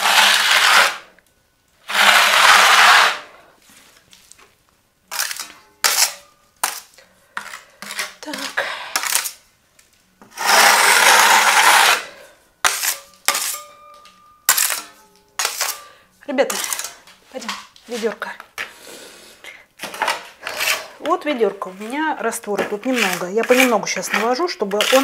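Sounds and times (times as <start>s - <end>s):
spatula scraping plaster: 0.0s - 1.1s, 1.8s - 3.4s, 5.1s - 9.4s, 10.2s - 13.6s, 16.4s - 18.2s, 19.8s - 25.0s.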